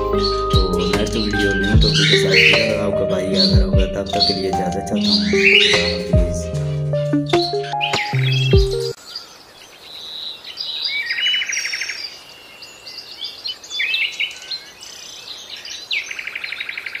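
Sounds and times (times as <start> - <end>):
buzzy trilled bird song: 0.0 - 9.3
finches chirping and whistling: 0.0 - 9.3.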